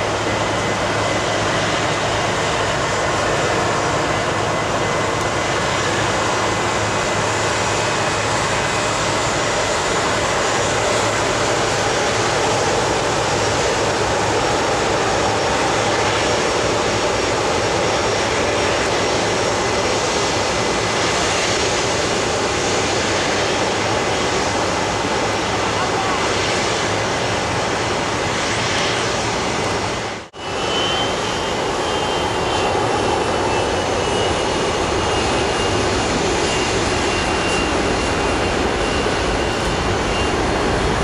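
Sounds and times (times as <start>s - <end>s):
jet engine rumble: 0.0s - 41.0s
faint high engine whine: 29.8s - 41.0s.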